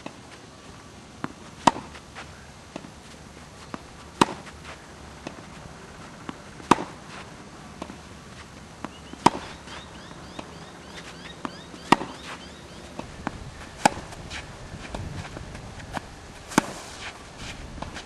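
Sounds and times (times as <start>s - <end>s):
tennis ball struck by racquets: 1.2s - 18.0s
ball bounces: 8.8s - 16.8s.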